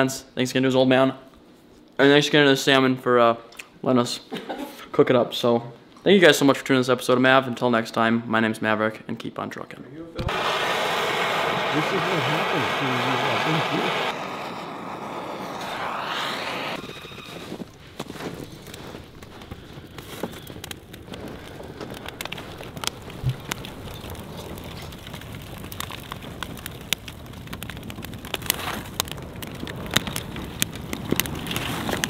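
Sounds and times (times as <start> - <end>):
fire crackling and popping: 10.2 - 32.0
steady rush of flames: 10.3 - 32.0.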